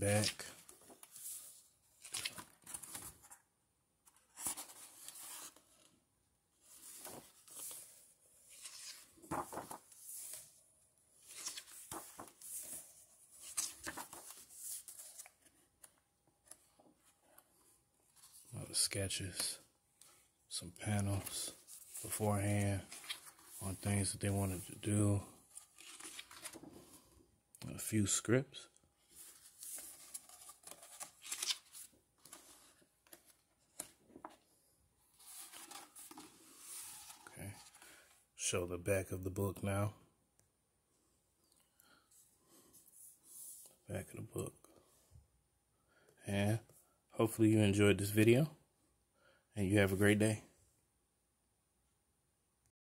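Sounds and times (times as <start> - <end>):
book pages turning: 0.2 - 3.4, 4.0 - 5.9, 6.6 - 10.6, 11.2 - 17.4, 21.0 - 24.9, 25.5 - 27.1, 29.0 - 34.4, 35.1 - 38.0.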